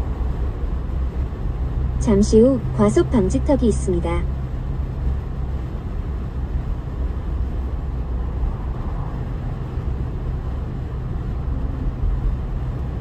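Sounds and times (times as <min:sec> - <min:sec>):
car interior road rumble: 0:00.0 - 0:13.0.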